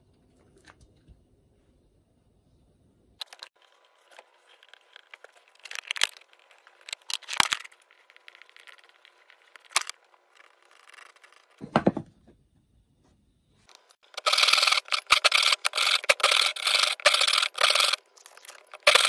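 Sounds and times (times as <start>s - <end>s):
wood pieces clicking: 3.2s - 11.6s, 13.7s - 19.0s
dull knock: 11.6s - 12.1s.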